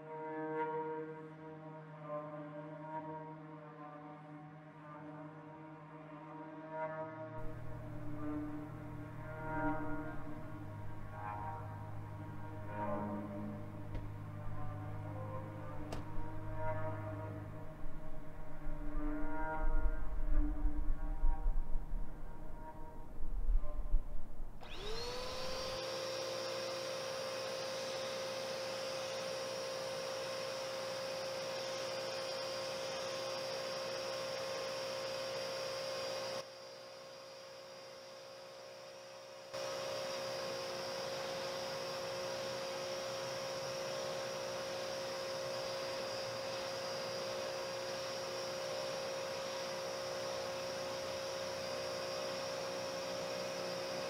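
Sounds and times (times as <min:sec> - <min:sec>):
car wash vacuum motor whining: 0:07.4 - 0:23.1, 0:24.6 - 0:54.0.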